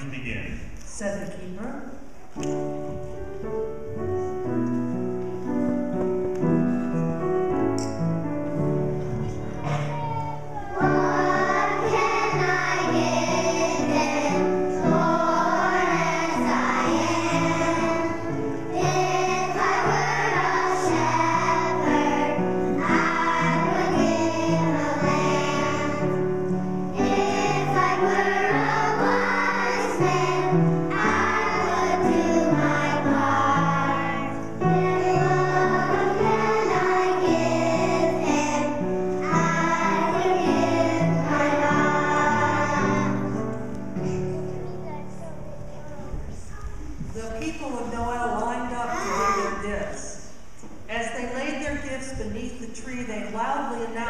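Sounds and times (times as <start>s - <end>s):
instrumental accompaniment: 2.2s - 46.8s
children's choir singing: 7.8s - 43.8s.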